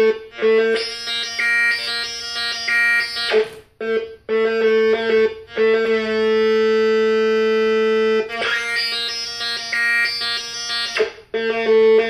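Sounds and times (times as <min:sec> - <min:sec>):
analog synthesizer tone: 0:00.0 - 0:12.0.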